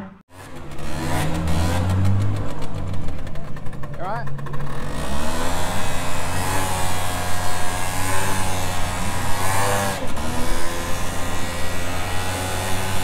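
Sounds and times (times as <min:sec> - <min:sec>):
vehicle engine running loudly: 0:00.0 - 0:13.0.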